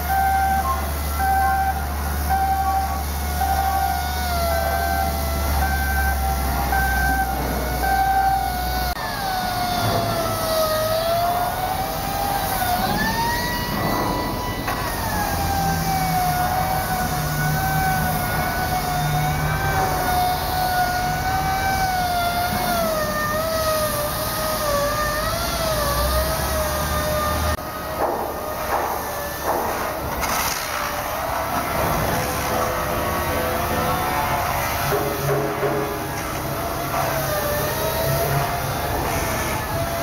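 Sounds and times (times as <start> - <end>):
power tool whining on metal: 0.0 - 40.0.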